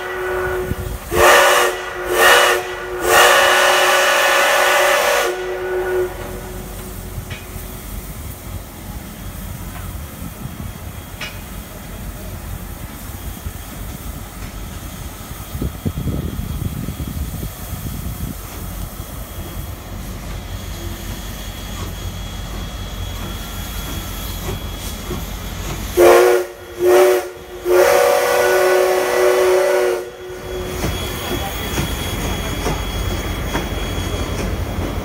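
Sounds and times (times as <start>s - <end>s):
steam locomotive whistle blasts: 0.0s - 7.7s, 18.5s - 34.9s
steam hissing: 0.0s - 35.0s
train rumbling past: 0.0s - 35.0s.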